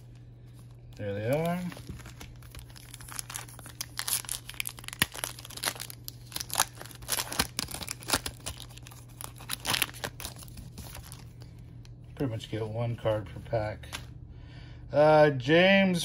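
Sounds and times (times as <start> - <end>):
foil wrapper tearing and crinkling: 0.0 - 11.5.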